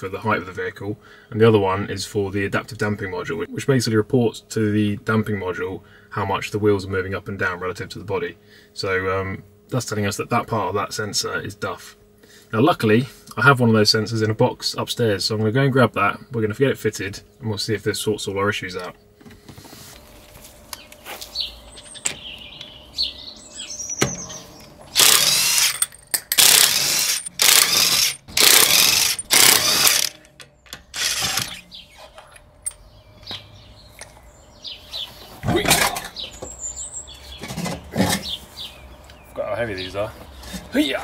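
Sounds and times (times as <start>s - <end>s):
birds chirping faintly: 20.6s - 25.0s, 30.2s - 41.0s
impact wrench bursts: 24.0s - 31.7s.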